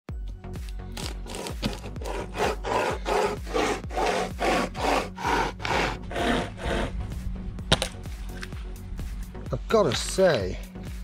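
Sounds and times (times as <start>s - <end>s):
hand chainsaw rasping through wood: 1.0s - 7.0s.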